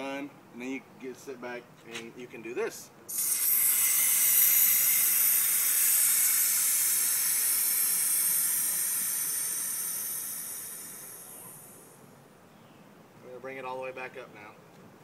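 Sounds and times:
compressed air hissing: 3.1s - 12.1s.

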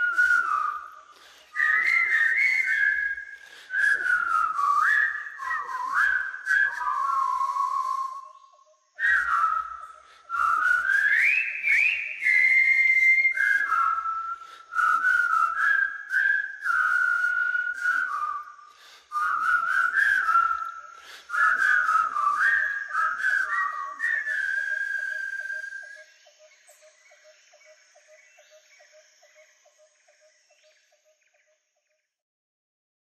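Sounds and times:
person whistling a tune: 0.0s - 8.4s, 9.0s - 26.0s.

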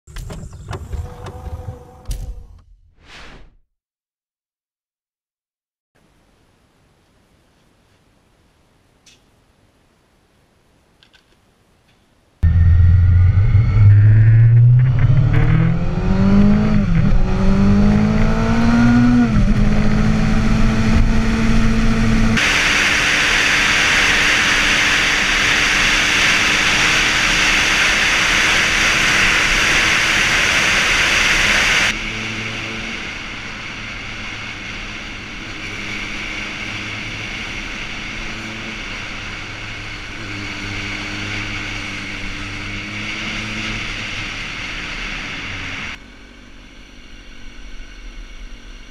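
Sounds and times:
motorcycle engine accelerating: 12.4s - 46.0s.

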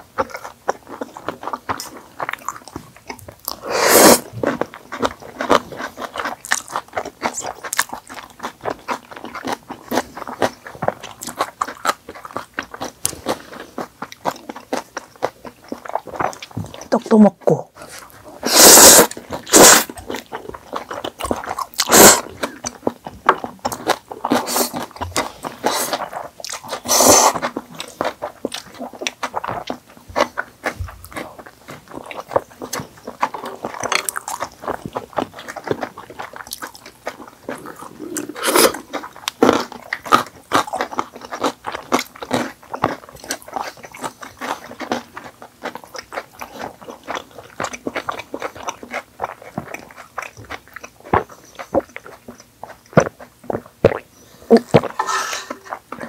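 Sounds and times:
close chewing and biting: 0.0s - 56.0s
noodles slurped: 3.5s - 4.3s, 17.8s - 20.0s, 21.8s - 22.8s, 24.2s - 29.4s, 37.2s - 40.9s.

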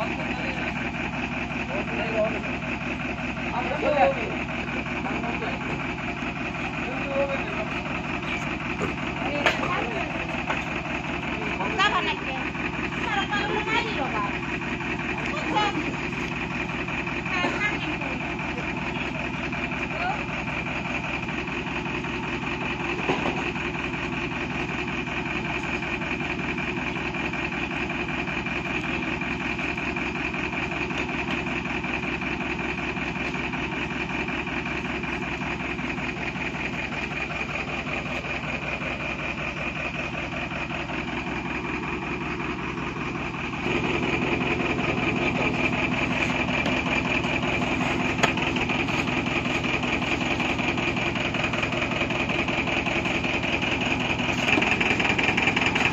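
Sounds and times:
diesel engine idling: 0.0s - 55.9s.

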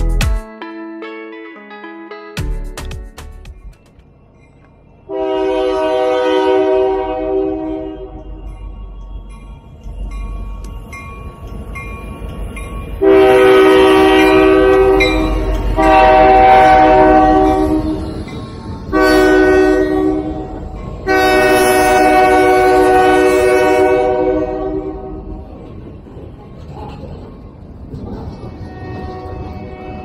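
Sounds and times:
diesel locomotive air horn: 5.1s - 8.5s, 13.0s - 18.1s, 18.9s - 25.4s, 28.6s - 30.0s.

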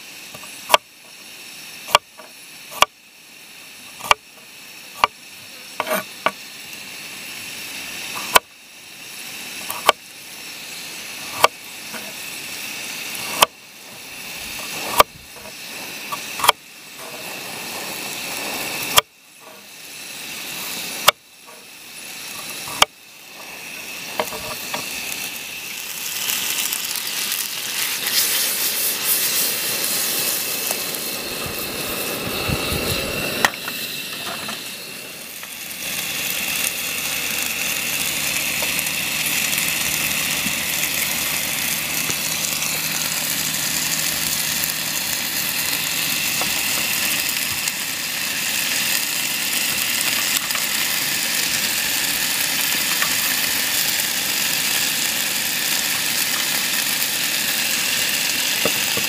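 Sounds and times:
vegetables sizzling in a pan: 0.0s - 59.0s
knife chopping on wooden board: 4.0s - 4.2s, 5.8s - 6.0s, 9.7s - 10.0s, 11.3s - 11.5s, 22.7s - 22.9s.

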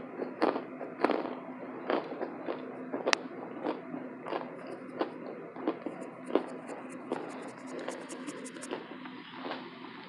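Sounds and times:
crisp crunching chewing: 0.4s - 9.6s.

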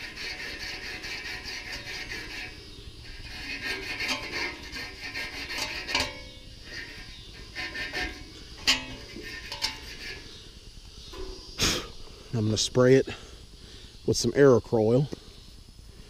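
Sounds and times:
abrasive strip sanding metal shaft: 0.0s - 10.4s.

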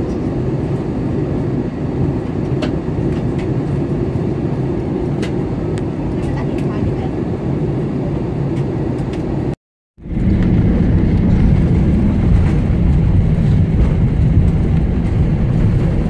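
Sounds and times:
airliner engine and airflow rumble: 0.0s - 16.0s.

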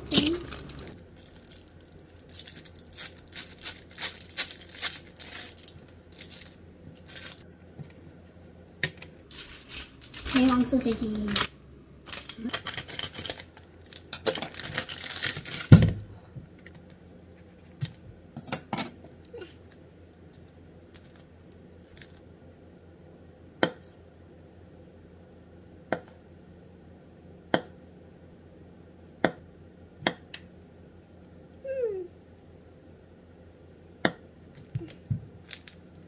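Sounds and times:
wrapper rustling: 0.0s - 7.5s, 9.3s - 11.5s, 12.1s - 15.8s, 20.4s - 22.2s, 34.8s - 35.8s.

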